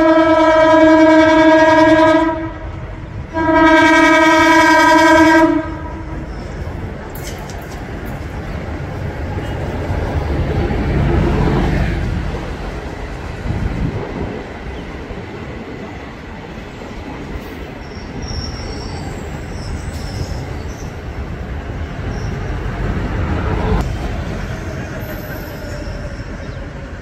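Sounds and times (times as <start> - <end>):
train rumbling on rails: 0.0 - 27.0
wheel squeal: 6.1 - 6.8, 17.8 - 21.0.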